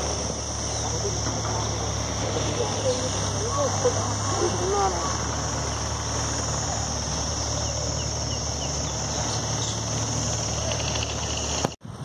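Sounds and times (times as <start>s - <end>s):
high-pitched insect chorus: 0.0s - 11.8s
low steady rumble: 0.0s - 12.0s.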